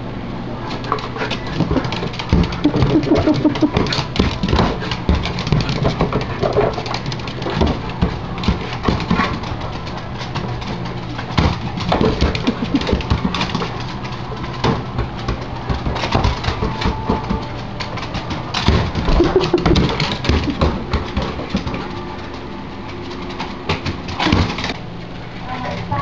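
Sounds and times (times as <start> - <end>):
dog whining: 1.6 - 4.0, 19.1 - 20.9
ball knocking on hardwood floor: 14.4 - 21.8.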